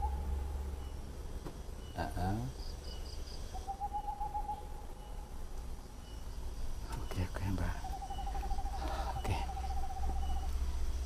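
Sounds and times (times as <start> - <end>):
trilled animal call: 0.0 - 0.5, 3.0 - 5.4, 7.8 - 10.6
insects chirping: 0.0 - 11.0
low steady hum: 0.0 - 11.0.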